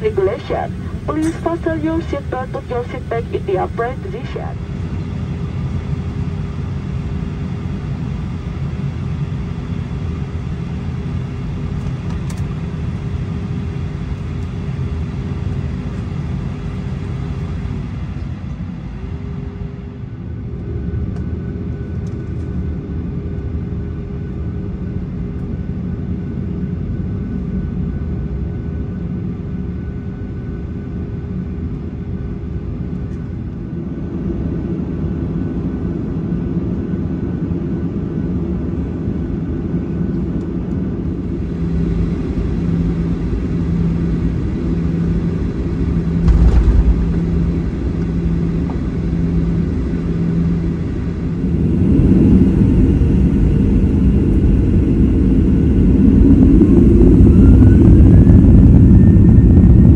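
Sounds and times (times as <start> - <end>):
pulsing low hum: 0.0 - 22.1, 41.0 - 59.9
airplane cabin rumble and hum: 0.0 - 59.9
low thump: 46.2 - 49.3.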